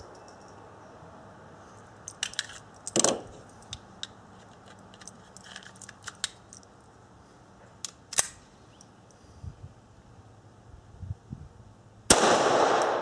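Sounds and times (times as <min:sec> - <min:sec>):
pistol mechanism clicks: 0:02.0 - 0:06.7, 0:07.8 - 0:08.9, 0:12.1 - 0:13.0.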